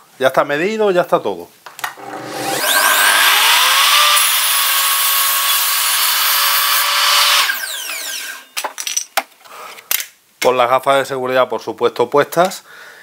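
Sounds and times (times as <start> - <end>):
mitre saw cutting board: 2.0 - 8.5.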